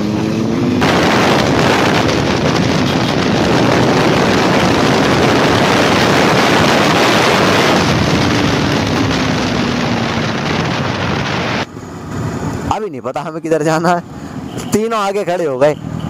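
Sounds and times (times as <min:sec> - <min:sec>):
wind buffeting microphone: 0:00.8 - 0:11.7.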